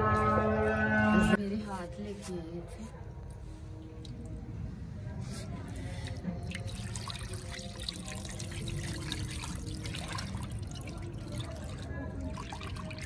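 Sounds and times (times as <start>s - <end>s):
water sloshing in a bowl: 5.5s - 13.0s
water pouring onto stone floor: 6.0s - 13.0s.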